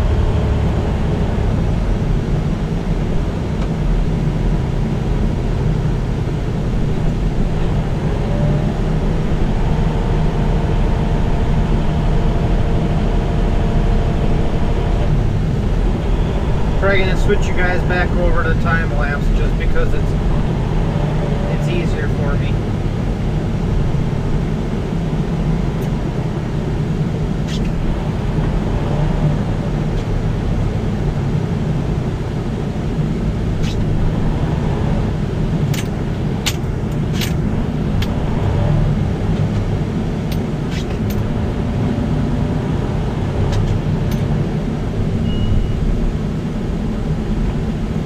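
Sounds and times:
truck engine and road rumble: 0:00.0 - 0:48.0
sharp clicks and ticks: 0:35.7 - 0:37.4, 0:38.0 - 0:38.2.

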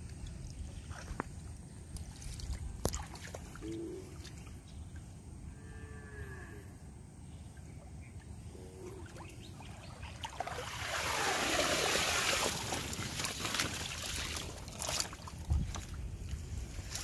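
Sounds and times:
water splashing in a fish crate: 0:10.1 - 0:15.9
short splashes and taps: 0:10.2 - 0:16.0.

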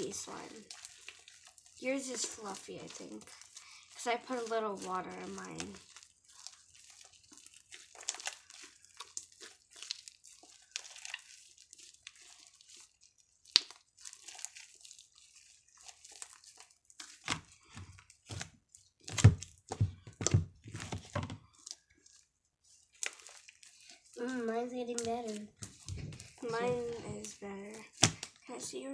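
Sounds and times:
slime crackling and tearing: 0:00.0 - 0:28.9.

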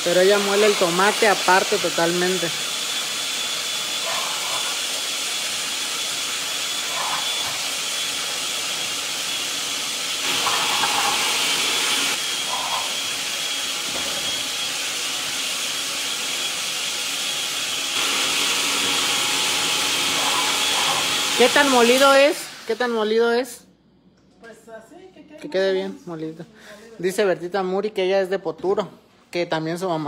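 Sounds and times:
blender motor whirring: 0:00.0 - 0:23.1.

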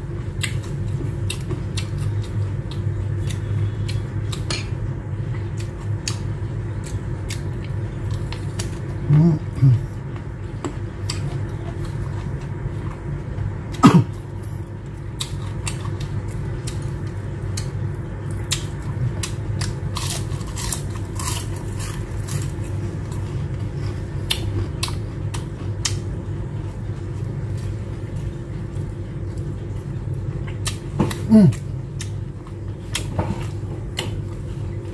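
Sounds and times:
low hum: 0:00.0 - 0:34.9
crunchy bites and chewing: 0:17.5 - 0:26.1.

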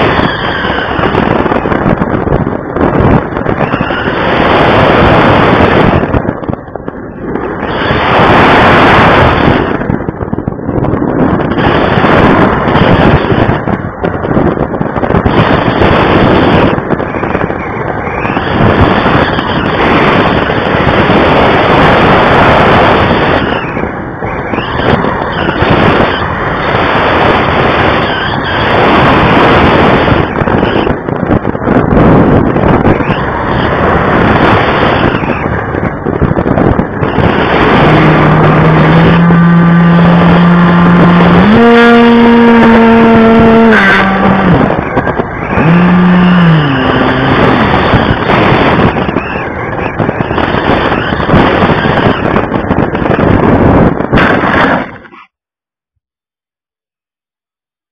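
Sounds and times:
wind rushing over microphone: 0:00.0 - 0:55.3
model plane motor hum: 0:36.8 - 0:53.2.

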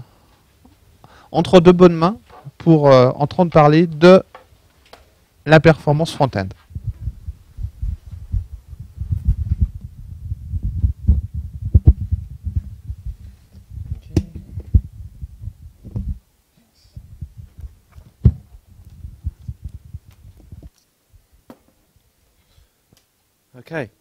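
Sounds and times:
microphone handling thumps: 0:06.5 - 0:16.2, 0:16.9 - 0:20.7.

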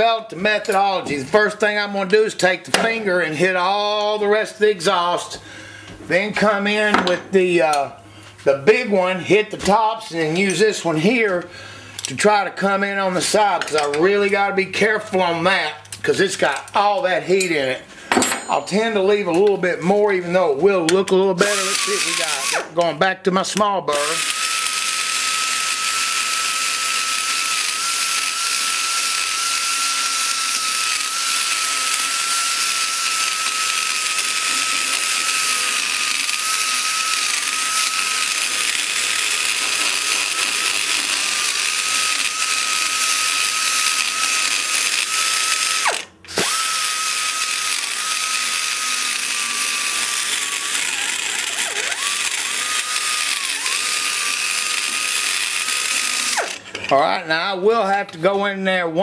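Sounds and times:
die grinder high whine: 0:21.4 - 0:22.8, 0:23.9 - 0:57.0.

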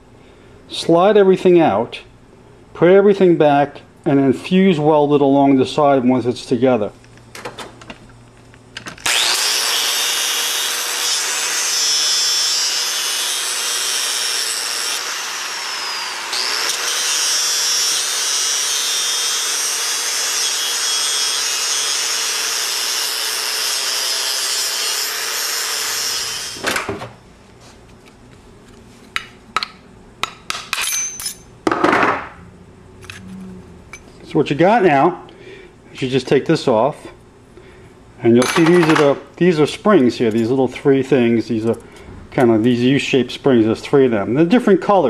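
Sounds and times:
angle grinder cutting steel: 0:09.0 - 0:26.6.

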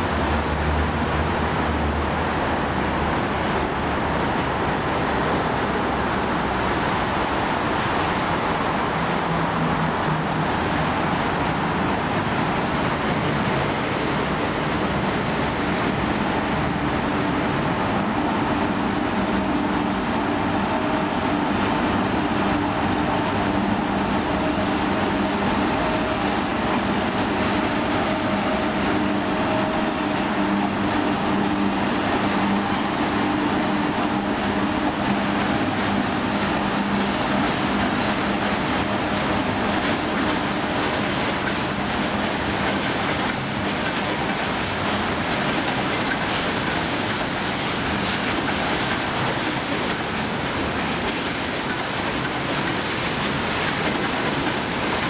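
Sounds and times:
diesel locomotive engine drone: 0:00.0 - 0:55.0
train wheels on rails: 0:00.0 - 0:55.0.

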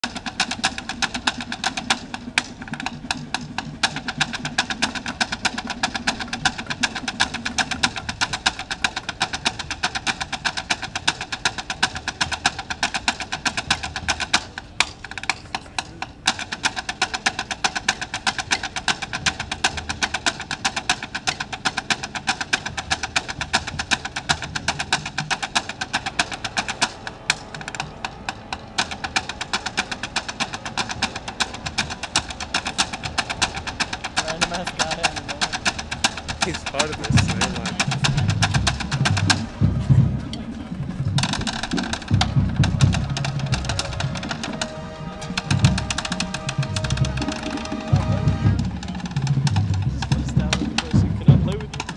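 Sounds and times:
drumsticks clicking on wooden plank: 0:41.2 - 0:47.9.

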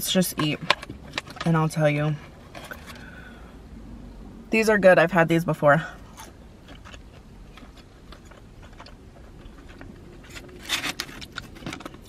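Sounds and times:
rustling and scraping: 0:00.0 - 0:03.4, 0:06.0 - 0:12.0
person chewing food: 0:06.0 - 0:12.0.

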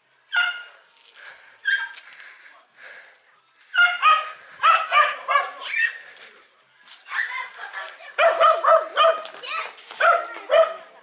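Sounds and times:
dog barking: 0:00.3 - 0:00.7, 0:03.8 - 0:05.8, 0:08.2 - 0:09.4, 0:10.0 - 0:10.9.

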